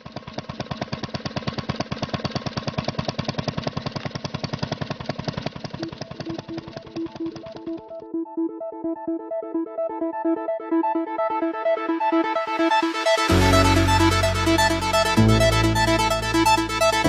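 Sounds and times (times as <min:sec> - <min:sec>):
fast mechanical chugging: 0:00.0 - 0:08.1
synth melody: 0:05.8 - 0:17.0.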